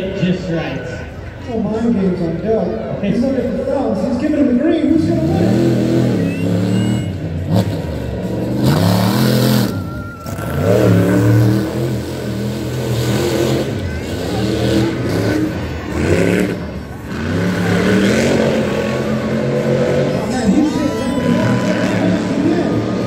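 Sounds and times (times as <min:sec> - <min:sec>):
truck engines revving hard: 0:00.0 - 0:23.0.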